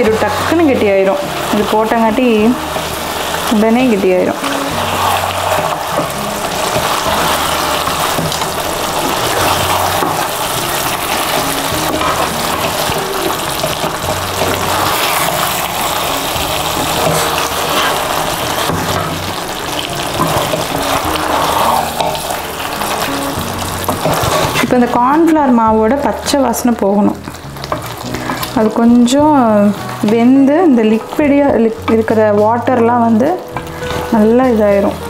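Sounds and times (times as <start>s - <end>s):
background music with bass line: 0.0s - 35.0s
gravy bubbling and sizzling in pan: 0.0s - 35.0s.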